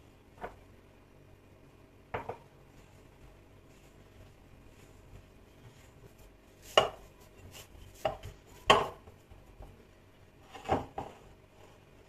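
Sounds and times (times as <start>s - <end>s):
dough kneaded by hand: 0.0s - 12.0s
dough knocking against glass bowl: 8.0s - 9.7s.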